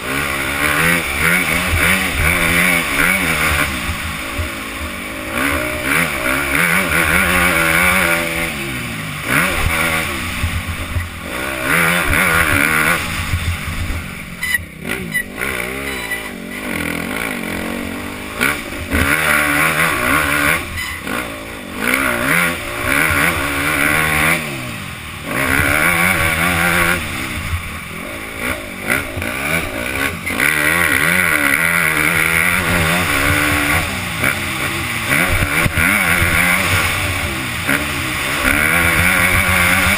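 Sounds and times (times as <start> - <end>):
motocross bike engine revving: 0.0 - 39.9.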